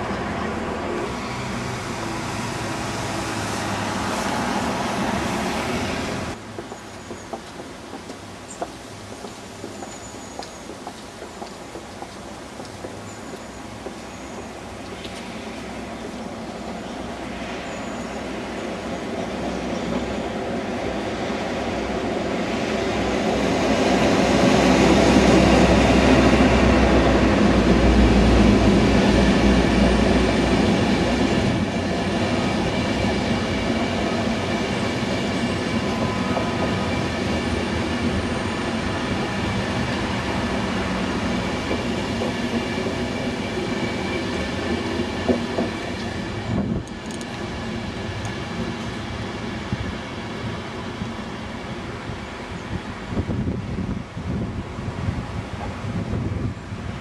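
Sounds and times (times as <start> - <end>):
diesel locomotive engine: 0.0 - 57.0
train wheels rumbling on rails: 0.0 - 57.0.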